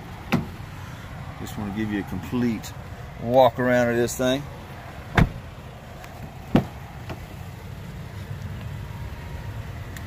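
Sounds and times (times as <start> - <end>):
car door knocks: 0.3 - 0.6, 5.1 - 5.4, 6.5 - 7.2.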